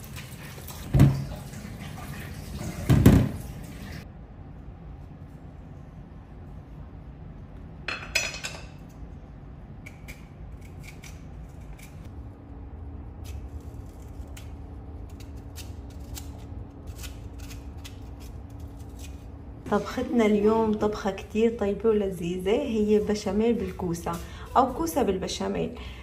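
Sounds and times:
low steady hum: 0:00.0 - 0:26.0
knife scraping and snipping vegetable: 0:09.8 - 0:12.1, 0:13.2 - 0:20.4.

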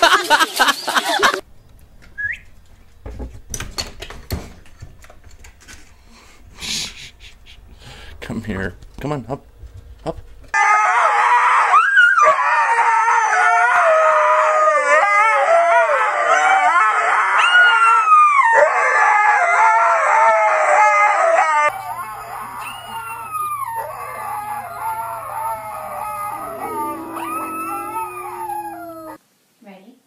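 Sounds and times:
steady low hum: 0:04.6 - 0:10.6, 0:21.7 - 0:29.2
huskies howling: 0:09.4 - 0:29.2
dog howling quietly: 0:10.6 - 0:29.2.

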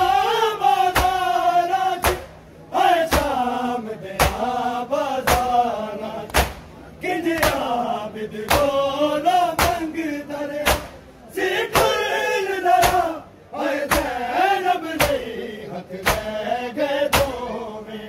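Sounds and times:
men beating their chests: 0:00.8 - 0:02.4, 0:03.0 - 0:03.4, 0:04.2 - 0:04.5, 0:05.2 - 0:05.6, 0:06.3 - 0:06.7, 0:09.5 - 0:10.0, 0:10.6 - 0:13.2, 0:13.8 - 0:14.2, 0:14.9 - 0:15.3, 0:16.0 - 0:16.4, 0:17.1 - 0:17.4.

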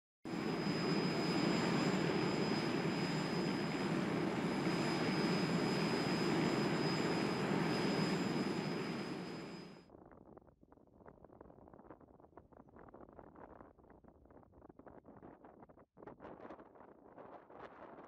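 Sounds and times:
jet engine noise: 0:00.3 - 0:09.8
thin high whine: 0:00.3 - 0:09.8.

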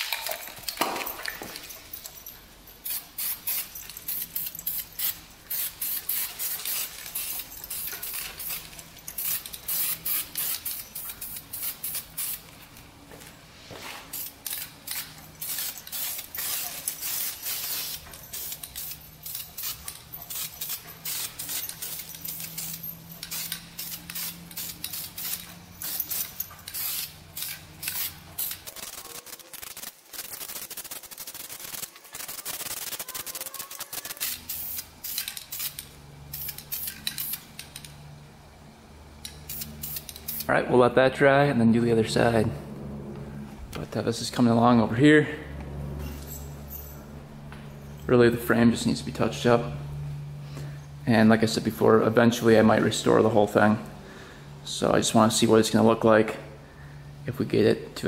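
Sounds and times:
aerosol can spraying: 0:02.9 - 0:12.4, 0:14.0 - 0:37.5.

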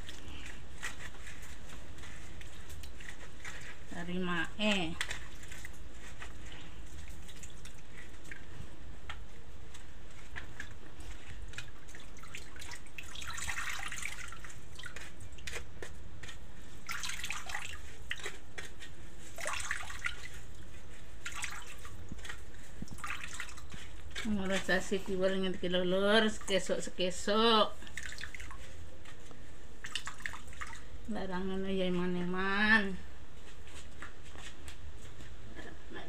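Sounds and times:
wet squelches of pulp pressed: 0:00.0 - 0:31.0
liquid dripping and trickling: 0:01.3 - 0:18.7, 0:19.3 - 0:24.9, 0:27.8 - 0:28.8, 0:29.8 - 0:30.9.

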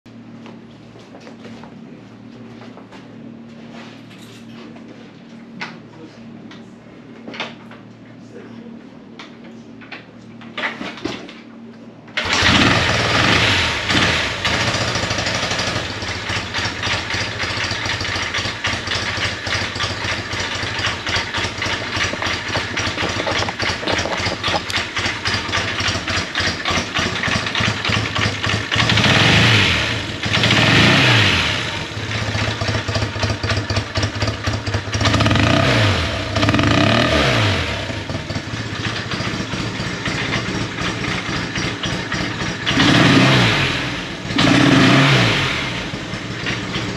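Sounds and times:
motorcycle engine idling and revving: 0:12.2 - 0:46.9.

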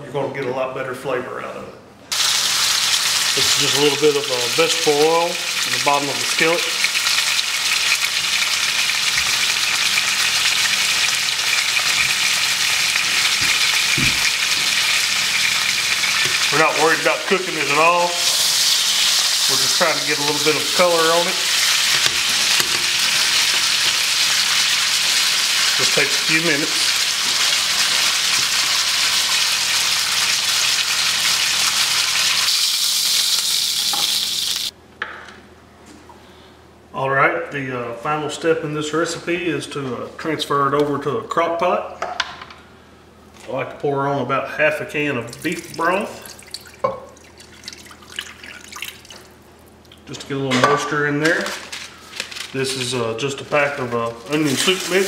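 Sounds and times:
meat sizzling in oil: 0:02.1 - 0:34.7, 0:54.2 - 0:55.0.

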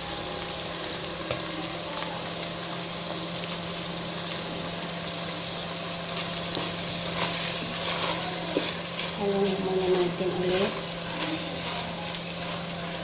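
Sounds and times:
food sizzling in pot: 0:00.0 - 0:13.0
spatula scraping pot: 0:06.2 - 0:12.9.

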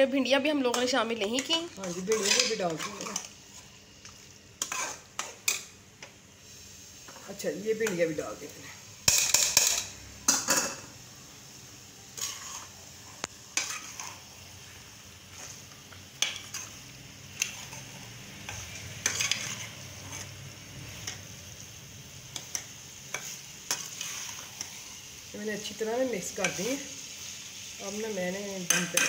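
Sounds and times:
frying sizzle: 0:00.0 - 0:29.0
spatula scraping metal pan: 0:00.7 - 0:03.7, 0:04.6 - 0:05.6, 0:12.2 - 0:12.8, 0:13.6 - 0:14.2, 0:17.4 - 0:20.4, 0:22.4 - 0:24.8.

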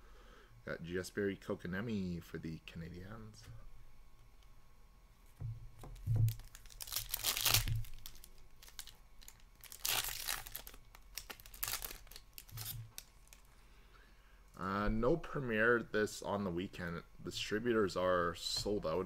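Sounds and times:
foil wrappers tearing and crinkling: 0:06.0 - 0:13.5.

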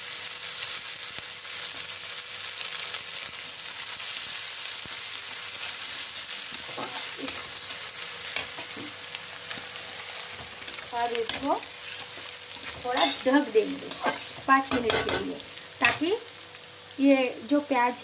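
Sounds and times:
onions sizzling in hot oil: 0:00.0 - 0:18.0
spatula clicks and scrapes: 0:10.4 - 0:13.2.

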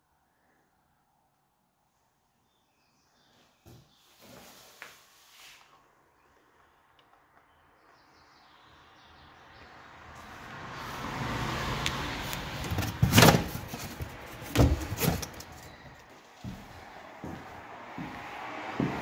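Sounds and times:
cardboard scraping rustle: 0:12.5 - 0:15.8
cardboard crackles and knocks: 0:12.6 - 0:15.7.

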